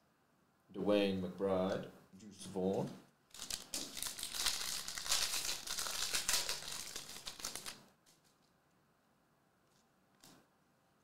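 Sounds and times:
foil wrapper tearing and crinkling: 3.3s - 7.8s.

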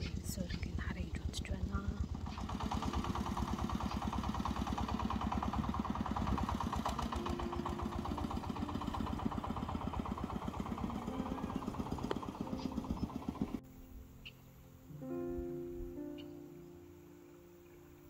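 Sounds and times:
motorcycle engine running: 0.0s - 13.6s.

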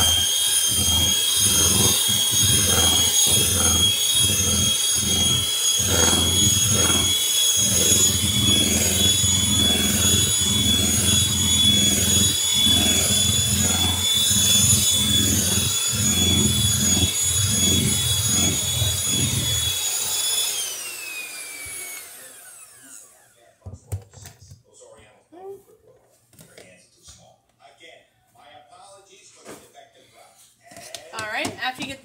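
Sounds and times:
electric hand mixer churning batter: 0.0s - 23.3s
mixer motor winding down: 0.0s - 23.3s.

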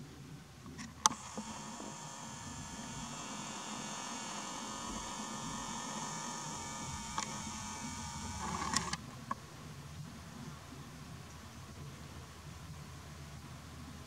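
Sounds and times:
camera zoom motor whine: 0.8s - 9.0s.

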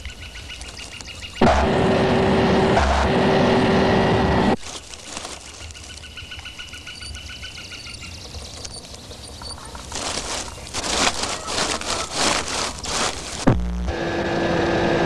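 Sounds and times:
footsteps through dry leaves: 0.3s - 1.4s, 4.6s - 7.0s, 9.6s - 13.6s
high bird chirps: 5.4s - 12.8s
bird trilling: 5.4s - 13.4s.

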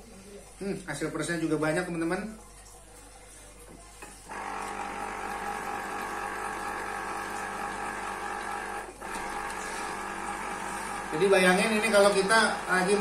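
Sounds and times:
electric citrus juicer motor humming: 4.2s - 13.0s.

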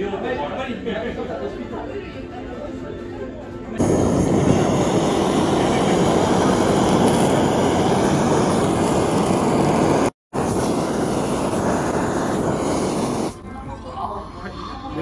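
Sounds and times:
blowtorch flame hissing: 3.8s - 13.4s.

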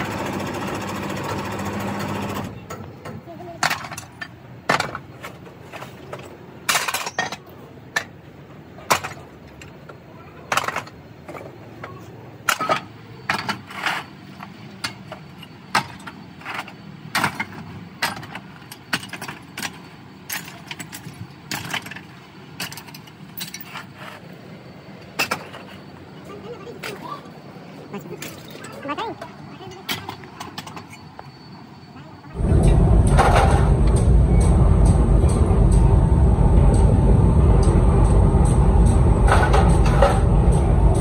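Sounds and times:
scrap metal clanking: 10.5s - 24.4s
low steady hum: 32.4s - 41.0s.

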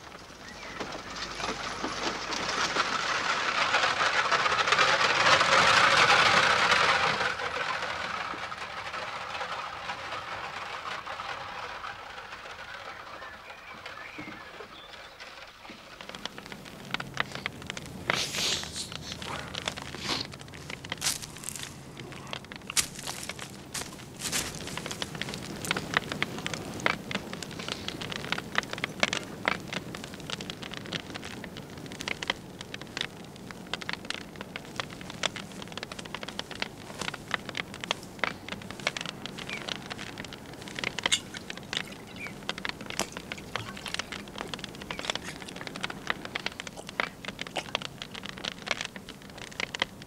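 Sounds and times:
campfire crackling and snapping: 0.0s - 9.4s, 13.5s - 50.0s
low rush of flames: 15.0s - 50.0s.

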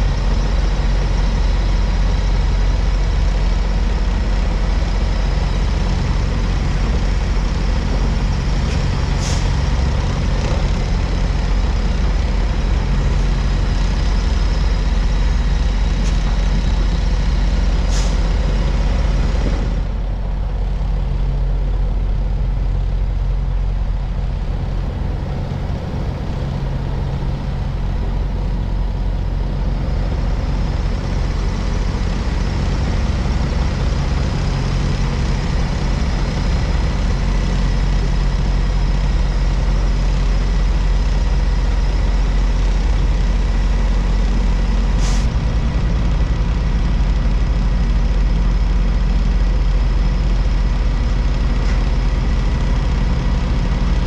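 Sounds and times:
diesel truck engine rumbling: 0.0s - 54.0s
brief high hiss: 45.0s - 45.3s.

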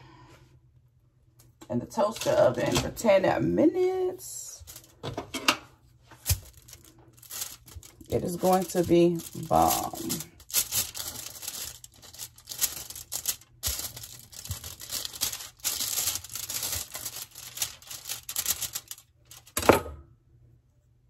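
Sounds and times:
foil crinkling: 4.5s - 5.0s, 6.2s - 19.6s.

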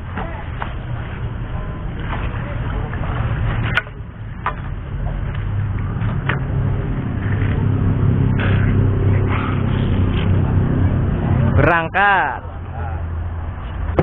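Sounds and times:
water splashes: 0.0s - 11.6s
low engine-like hum: 0.0s - 14.0s.

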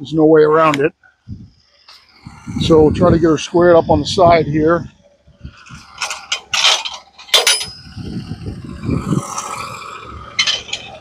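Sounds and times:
rough low rumbling scrape: 1.1s - 11.0s
metal clanks and clinks: 5.6s - 8.1s, 9.4s - 11.0s.

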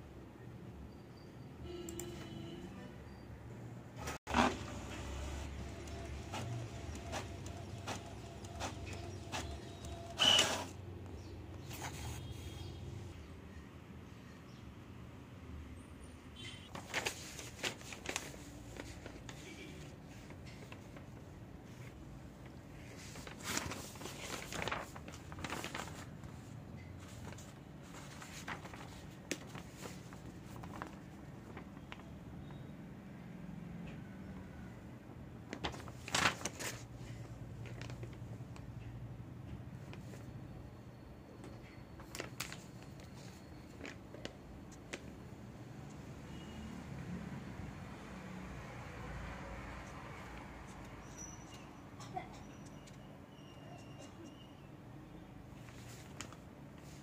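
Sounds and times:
page feeding through printer: 4.0s - 10.8s
paper rustling: 4.1s - 10.8s, 11.6s - 12.7s, 16.7s - 32.1s, 35.5s - 38.3s, 42.0s - 45.0s, 55.6s - 57.0s
printer motors clicking: 4.3s - 11.7s.

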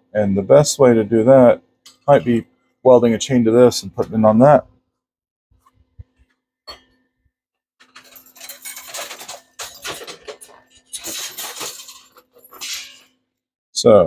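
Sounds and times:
small metal parts clinking: 7.8s - 13.2s.

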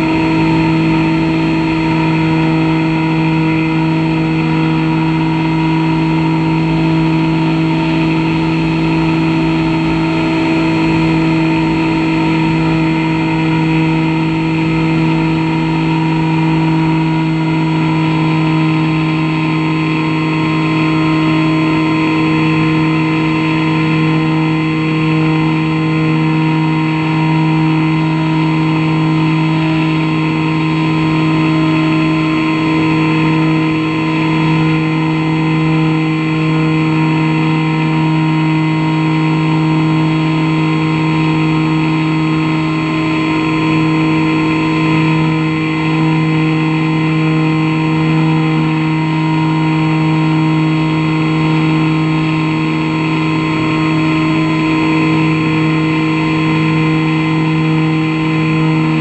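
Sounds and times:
model airplane motor humming: 0.0s - 59.0s.

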